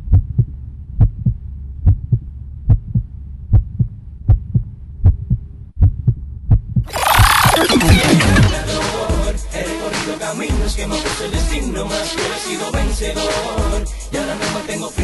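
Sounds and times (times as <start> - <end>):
heartbeat thumps: 0.0 - 9.3.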